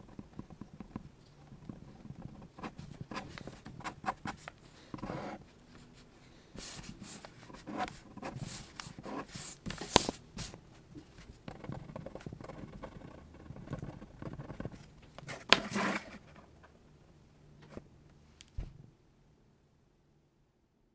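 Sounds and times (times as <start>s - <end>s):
pen scratching on paper: 1.8s - 5.4s, 6.6s - 10.6s, 11.4s - 16.3s.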